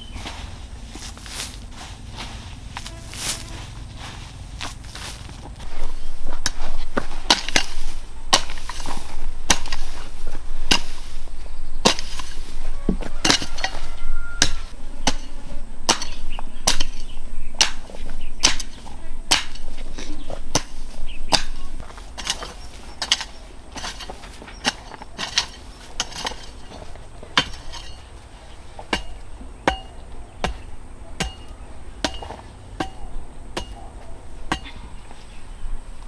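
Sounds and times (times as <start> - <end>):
hand hoe chopping into clay soil: 4.6 - 28.1, 28.8 - 33.9, 34.5 - 34.8.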